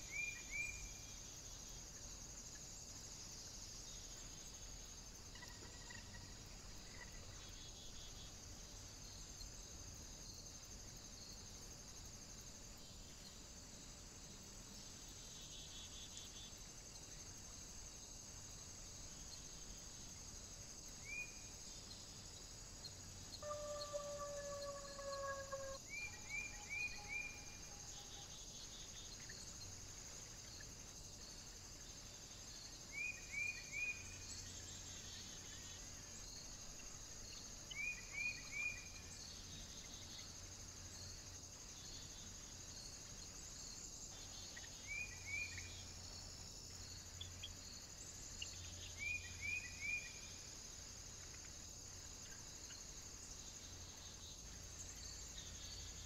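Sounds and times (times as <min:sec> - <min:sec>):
high-pitched insect chirring: 0:23.4 - 0:28.4.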